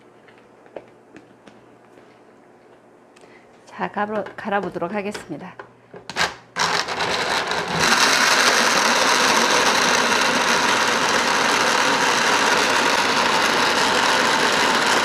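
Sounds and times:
blender motor running: 6.6s - 15.0s.

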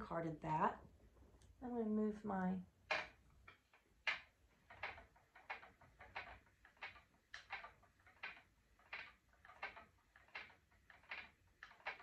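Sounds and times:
spinning wheel turning: 2.9s - 12.0s.

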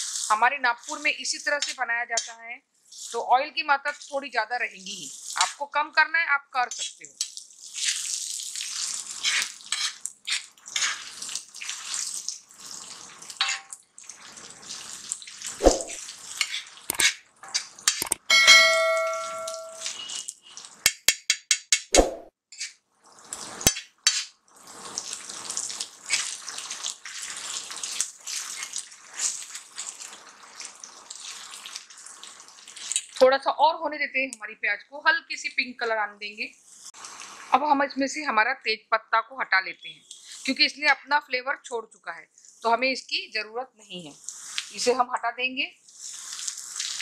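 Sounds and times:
spatula scraping pan: 0.0s - 3.2s, 8.7s - 12.0s, 15.4s - 18.1s, 25.9s - 31.9s
onions sizzling in oil: 0.0s - 3.3s, 3.9s - 5.6s, 6.8s - 17.0s, 23.2s - 33.2s, 44.2s - 45.0s, 45.8s - 47.0s
spatula clanging on pan: 13.4s - 13.8s, 16.4s - 20.1s.

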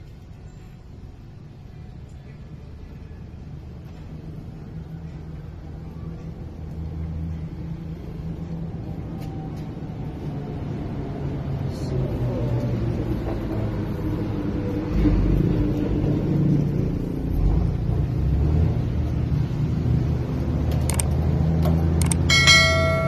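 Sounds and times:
low motor rumble: 20.9s - 23.0s.

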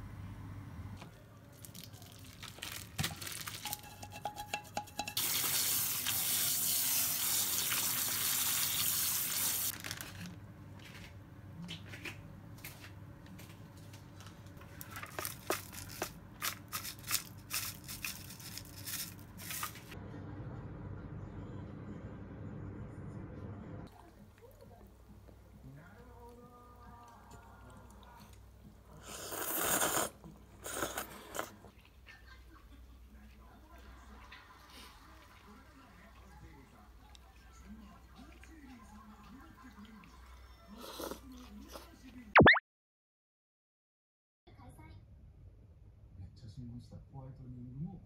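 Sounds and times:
kitchen clicks and knocks: 3.6s - 5.2s
water tap running: 5.2s - 9.7s.

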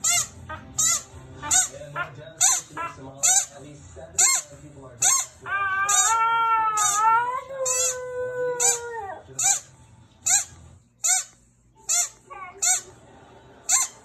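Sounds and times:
squeaky dog toy: 0.0s - 13.0s, 13.6s - 14.0s
dog howling: 5.4s - 9.2s.

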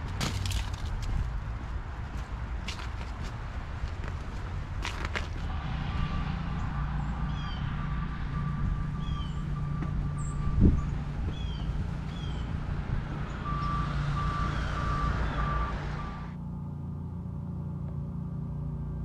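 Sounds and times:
low engine rumble: 0.0s - 19.0s
reversing alarm beeping: 5.5s - 11.8s, 13.3s - 16.4s.

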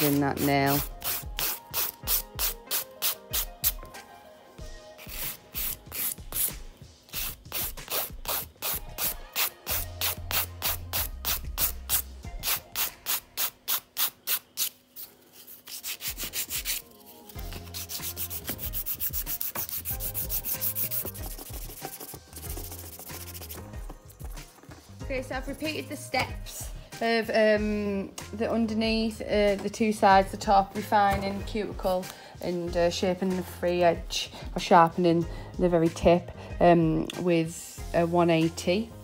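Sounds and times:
nail file rasping: 0.7s - 3.8s, 5.0s - 14.8s, 15.4s - 24.6s.

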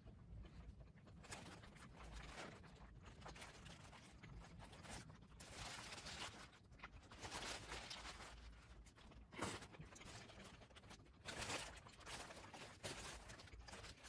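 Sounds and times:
paper wrapper rustling: 4.7s - 14.0s.

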